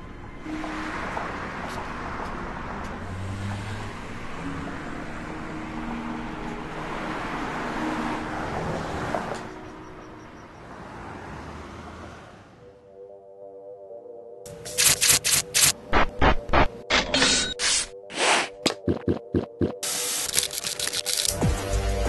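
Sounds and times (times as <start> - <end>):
soft background music: 0.0 - 11.3, 12.5 - 22.0
cars passing: 0.0 - 12.9.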